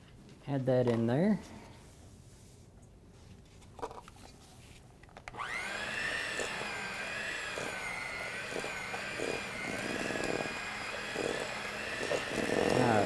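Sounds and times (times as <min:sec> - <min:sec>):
electric mixer motor whine: 0:05.3 - 0:13.0.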